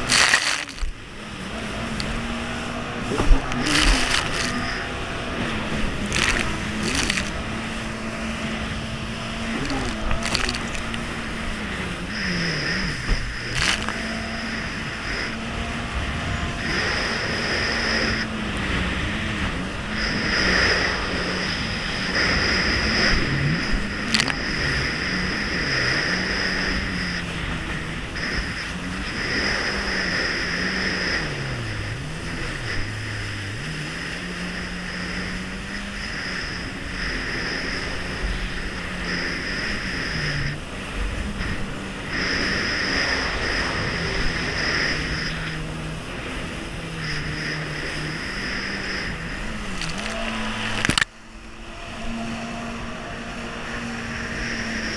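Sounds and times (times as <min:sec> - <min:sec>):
high whine: 0:00.0 - 0:54.9
jet ski engine running: 0:00.0 - 0:54.9
rush of water and spray: 0:00.0 - 0:54.9.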